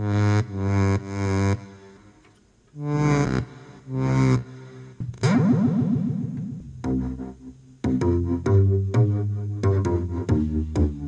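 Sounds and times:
synthesizer single notes: 2.8s - 11.0s.

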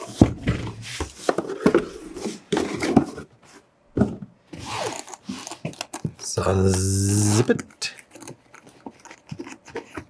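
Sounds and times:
knocks scrapes and rustles: 0.0s - 6.2s
hands handling cardboard box: 0.0s - 10.0s.

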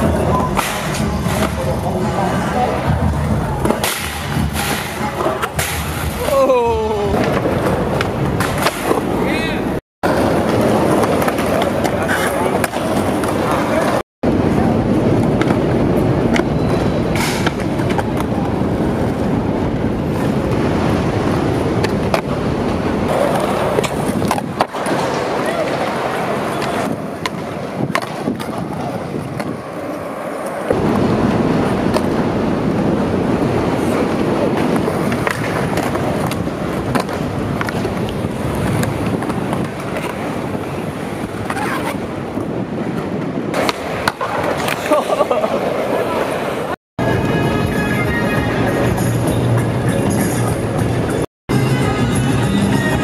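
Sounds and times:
skateboard clacking on ground: 0.0s - 14.0s, 21.5s - 30.8s, 33.4s - 46.7s
skateboard wheels rolling on concrete: 0.0s - 53.0s.

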